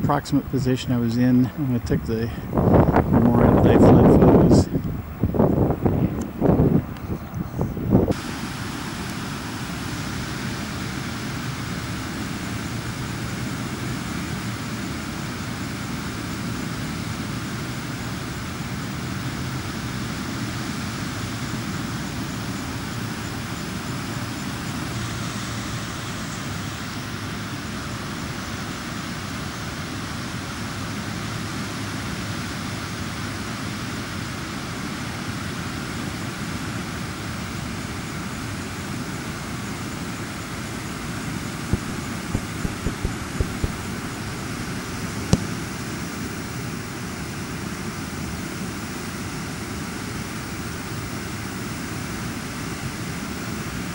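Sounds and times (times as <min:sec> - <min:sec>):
floodwater rushing down creek: 0:41.7 - 0:45.6.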